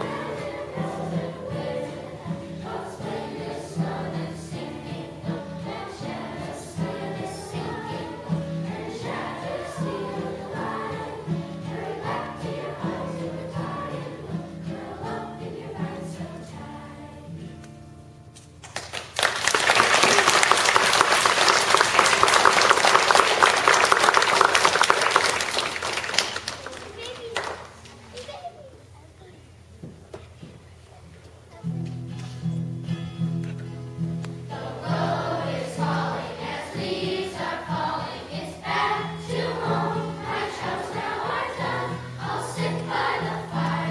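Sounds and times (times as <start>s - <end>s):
children's choir singing: 0.0s - 17.6s, 34.4s - 43.9s
acoustic guitar: 0.0s - 19.2s, 31.5s - 43.9s
audience applauding: 18.6s - 27.8s.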